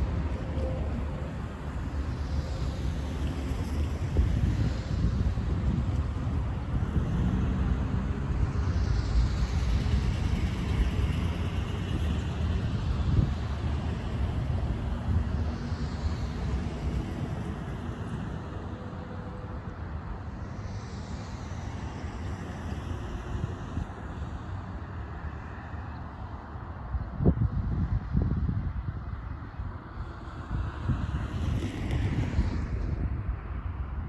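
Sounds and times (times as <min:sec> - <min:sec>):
freight train rumbling past: 0:00.0 - 0:24.0.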